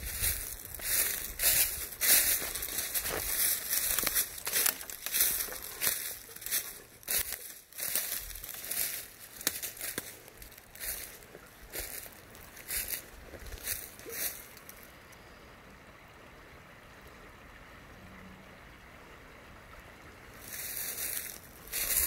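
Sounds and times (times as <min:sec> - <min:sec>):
footsteps crunching dry leaves: 0:00.0 - 0:14.6, 0:20.4 - 0:22.0.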